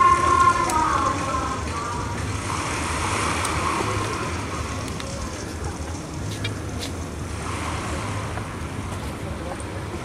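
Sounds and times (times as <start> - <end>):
distant crowd chatter: 0.0 - 10.0.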